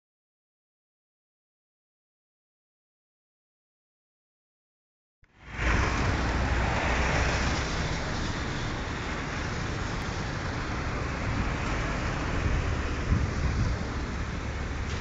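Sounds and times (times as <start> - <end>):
street traffic rumble: 5.2 - 15.0.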